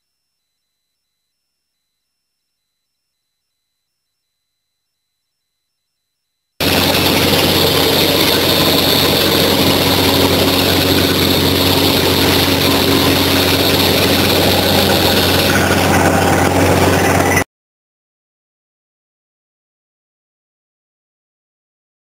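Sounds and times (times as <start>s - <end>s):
drilling rig engine running: 6.6s - 17.4s.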